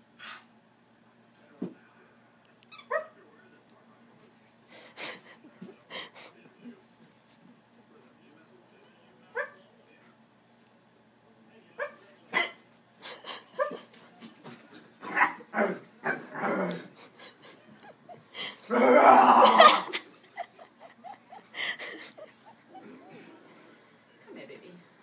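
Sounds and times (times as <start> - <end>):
dog barking: 9.4 - 9.6, 11.8 - 12.6.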